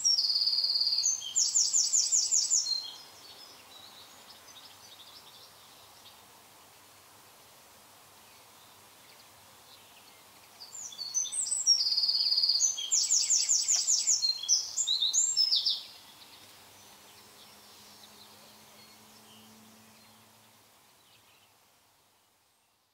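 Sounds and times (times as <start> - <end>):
songbird singing trills: 0.0 - 6.2, 8.3 - 21.6
faint background noise: 0.0 - 22.9.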